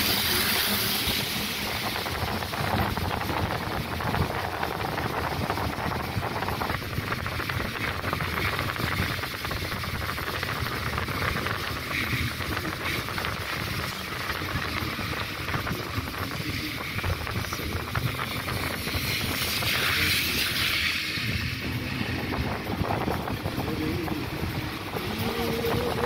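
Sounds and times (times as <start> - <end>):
rushing wind: 0.0 - 26.0
vehicle running rumble: 0.0 - 26.0.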